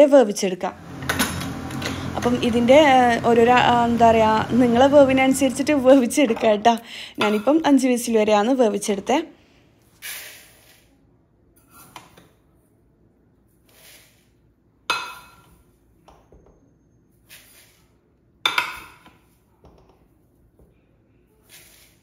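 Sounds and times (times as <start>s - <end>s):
metal cup scraping in rice: 10.0s - 10.9s, 21.4s - 22.0s.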